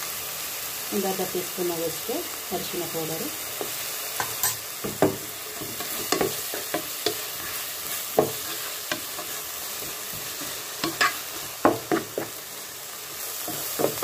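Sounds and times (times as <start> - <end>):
onion frying in oil: 0.0 - 14.0
wooden spatula scraping pan: 5.0 - 12.4.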